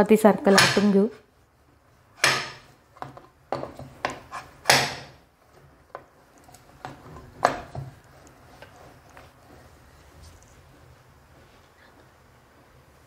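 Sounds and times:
rolling pin clacking on metal board: 2.2 - 5.2
dough rubbing: 5.4 - 13.0.

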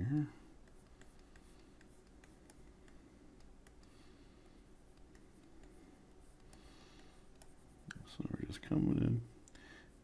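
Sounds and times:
low room hum: 0.0 - 10.0
stylus scratching on tablet: 0.6 - 3.9, 4.8 - 9.0.

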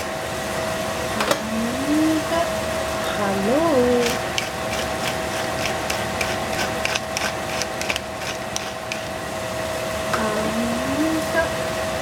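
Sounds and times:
faint hum: 0.0 - 12.0
seasoning shaker ticking: 3.9 - 9.2.

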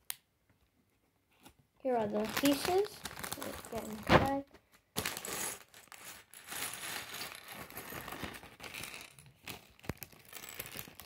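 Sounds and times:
plastic bag crinkling: 1.9 - 11.0
plastic bricks clattering on wood: 5.2 - 11.0.

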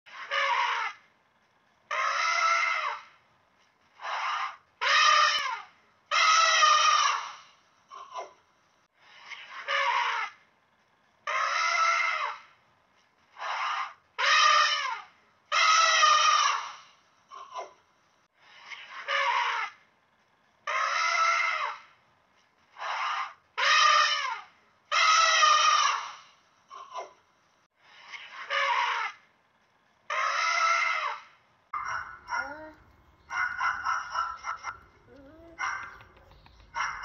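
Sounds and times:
high-pitched animal calls: 31.8 - 37.0.

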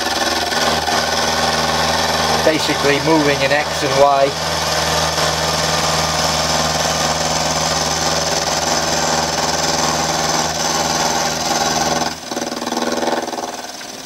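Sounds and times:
milling machine hum: 0.0 - 14.0.

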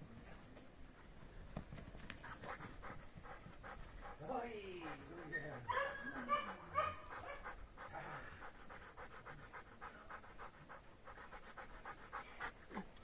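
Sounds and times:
dog panting rapidly: 1.8 - 13.0.

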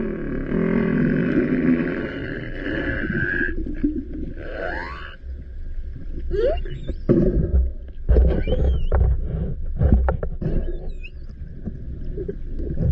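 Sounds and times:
low underwater rumble: 0.0 - 12.9
humpback whale calls underwater: 6.3 - 7.1.

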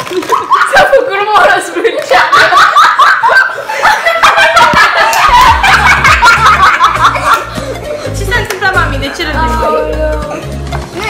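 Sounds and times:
girls laughing loudly: 0.0 - 8.5.

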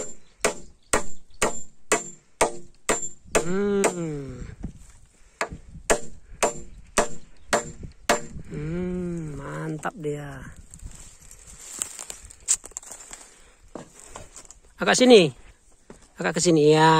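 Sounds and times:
hammer driving nails into wood: 0.0 - 4.1, 5.4 - 8.4.

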